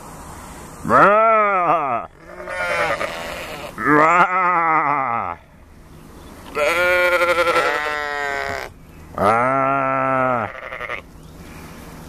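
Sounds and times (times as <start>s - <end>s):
sheep bleating: 0.9s - 5.4s, 6.5s - 11.0s.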